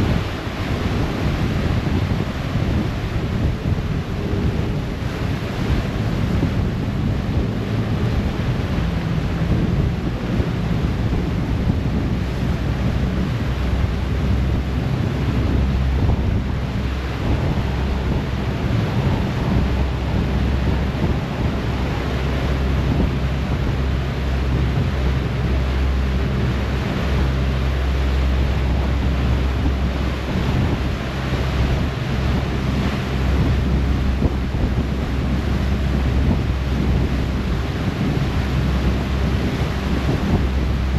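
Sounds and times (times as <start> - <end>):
churning wake rushing: 0.0 - 40.9
ferry engine droning: 0.0 - 40.9
wind buffeting microphone: 0.0 - 40.9.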